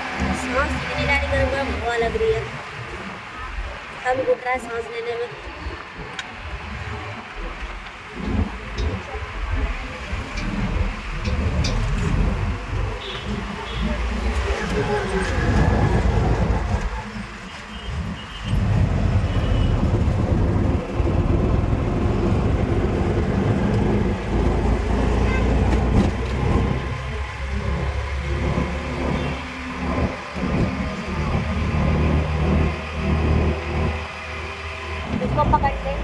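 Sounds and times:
traffic rumble: 0.0s - 36.0s.

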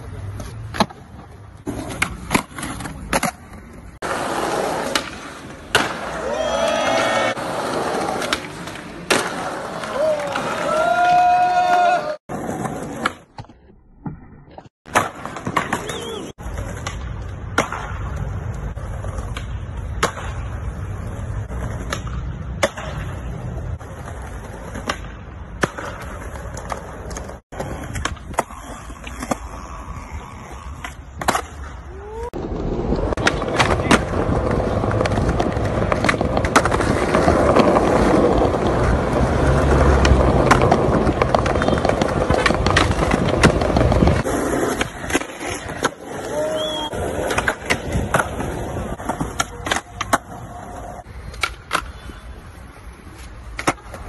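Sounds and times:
skateboard wheels rolling on concrete: 0.0s - 54.0s
skateboard clacks: 14.9s - 31.7s, 32.7s - 52.3s, 53.1s - 54.0s.

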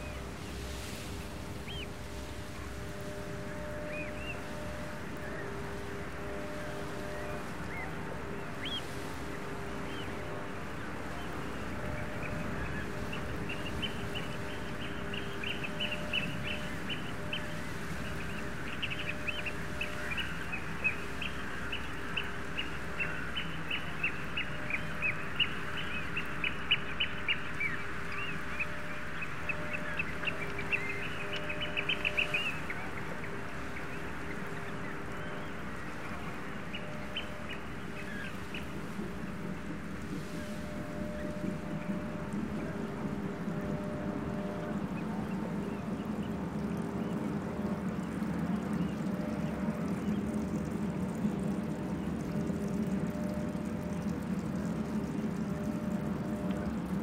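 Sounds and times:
low steady hum: 0.0s - 57.0s
flock of birds calling: 1.2s - 47.2s.

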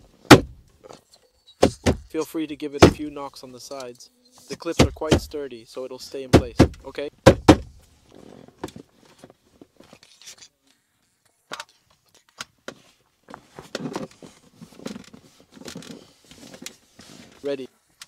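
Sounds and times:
hand knocking on plastic: 6.4s - 7.7s.

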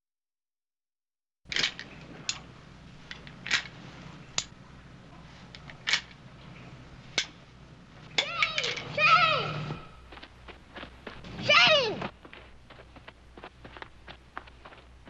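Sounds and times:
faint low hum: 1.5s - 15.0s
revolver metallic clicks: 4.4s - 4.6s.

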